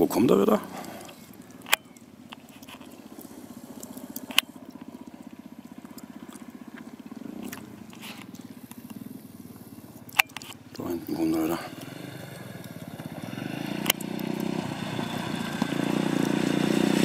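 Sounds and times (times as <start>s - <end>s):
distant motorcycle engine: 0.0s - 17.0s
sharp clicks: 9.9s - 10.9s, 11.7s - 14.6s.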